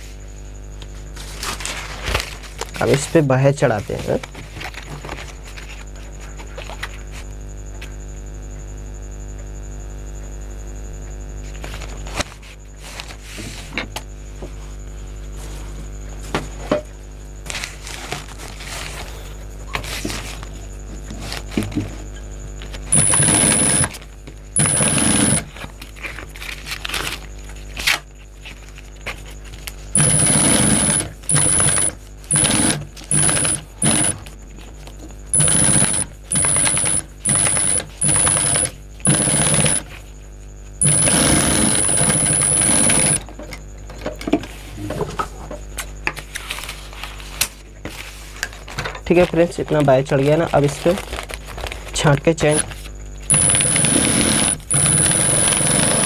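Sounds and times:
sewing machine whine: 22.9 - 25.7, 29.9 - 34.3, 35.3 - 40.0, 40.8 - 43.3, 52.4 - 56.0.

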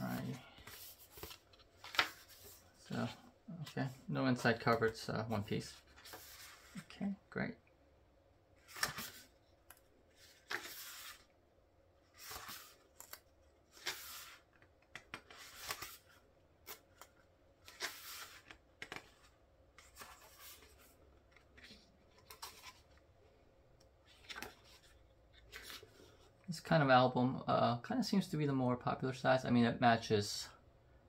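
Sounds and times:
pages turning: 0.0 - 4.9, 5.8 - 6.8, 8.6 - 11.3, 12.1 - 23.0, 24.0 - 26.2.

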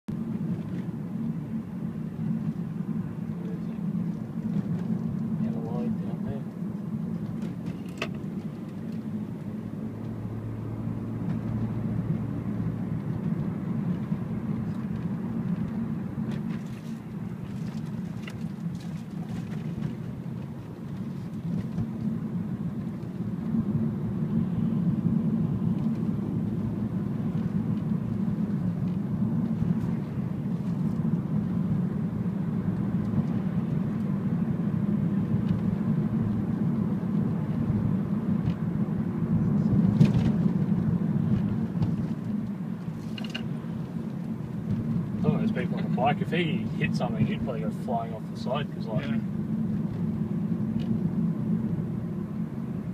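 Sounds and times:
car engine and tyre noise: 0.0 - 52.9.

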